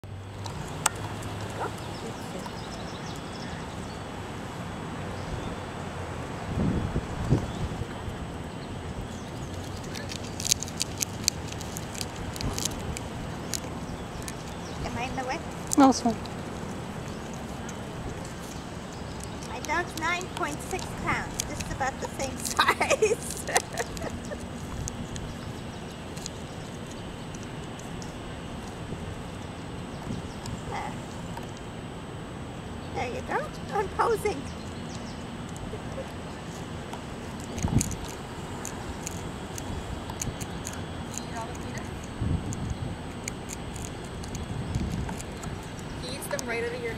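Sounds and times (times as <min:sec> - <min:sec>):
low background noise: 0:00.0 - 0:46.9
low outdoor rumble: 0:00.0 - 0:46.9
animal crunching a peanut: 0:09.1 - 0:28.8, 0:36.4 - 0:46.5.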